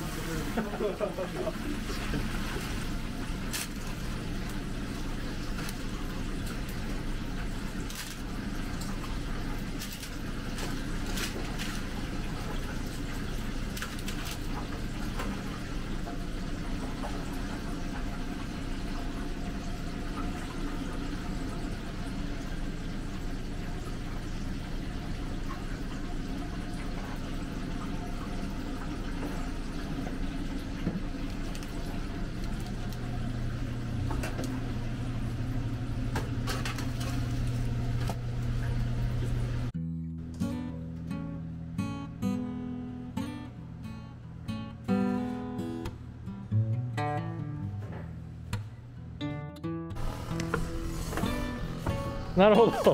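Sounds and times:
oil sizzling: 0.0s - 39.8s, 50.0s - 52.7s
fryer and exhaust hood hum: 0.0s - 52.9s.

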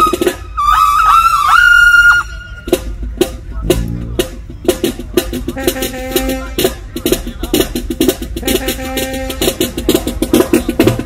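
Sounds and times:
marching band brass: 0.0s - 11.0s
fast drum hits: 2.6s - 11.0s.

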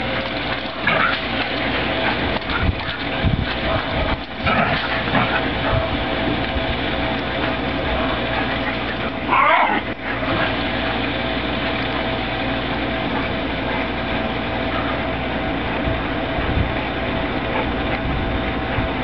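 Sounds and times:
mechanical hum: 0.0s - 19.0s
dog yelping: 8.4s - 10.0s.

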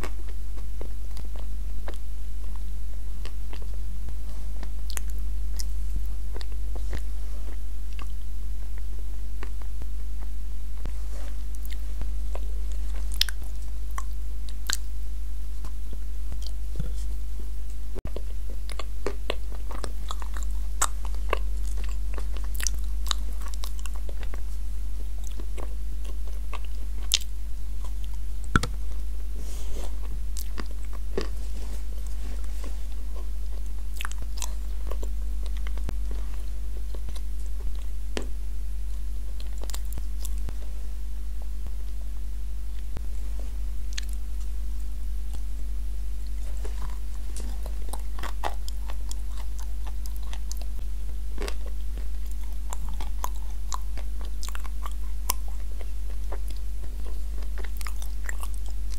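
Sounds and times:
low hum: 0.0s - 58.9s
chewing crunches: 3.2s - 8.2s, 8.8s - 14.9s, 18.1s - 24.6s, 25.2s - 29.0s, 29.8s - 38.3s, 38.9s - 40.7s, 42.8s - 44.5s, 46.2s - 58.9s.

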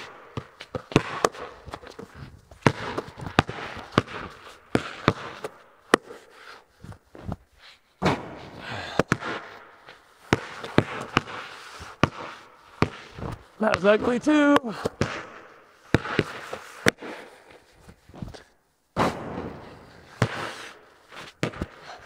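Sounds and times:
basketballs bouncing on concrete: 0.0s - 6.2s, 8.0s - 9.6s, 10.2s - 17.4s, 19.1s - 20.6s, 21.4s - 22.0s
ball striking the hoop: 0.3s - 1.5s, 8.0s - 9.6s.

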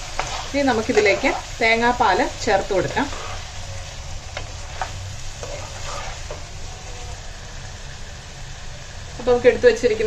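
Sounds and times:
spoon knocking and scraping pan: 0.0s - 1.4s, 4.3s - 6.5s
curry sizzling in a wok: 0.0s - 10.0s.

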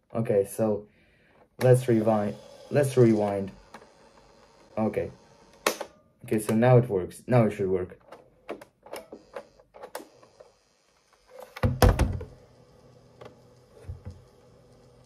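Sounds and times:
tape mechanism humming: 1.6s - 6.7s, 9.0s - 15.0s.

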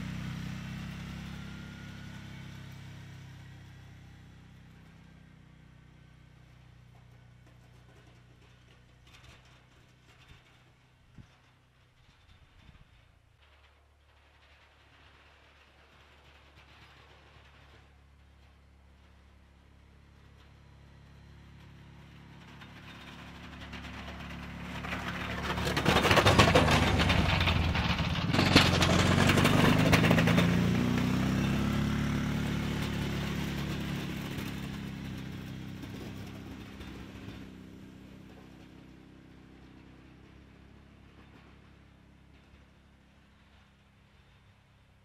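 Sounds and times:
atv engine passing: 0.0s - 10.6s, 19.3s - 44.4s
plow blade pushing snow: 0.0s - 44.9s.

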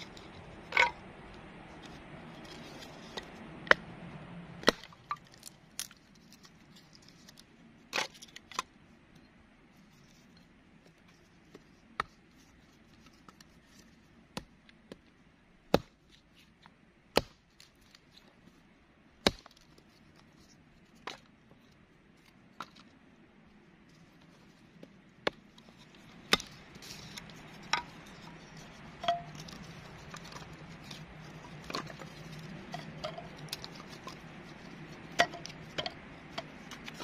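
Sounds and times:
hatchet chopping firewood: 4.6s - 6.0s, 15.7s - 16.0s, 17.1s - 17.5s, 19.2s - 19.6s, 25.2s - 28.2s.

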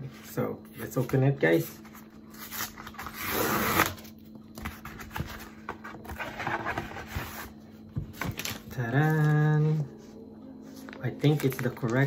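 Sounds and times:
cardboard scraping and crinkling: 1.6s - 9.4s
cardboard tearing: 2.3s - 4.1s.

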